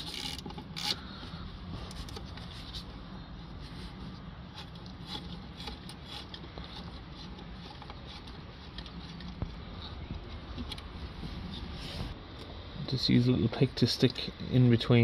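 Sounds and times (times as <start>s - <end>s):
ratchet clicking: 0.0s - 1.0s.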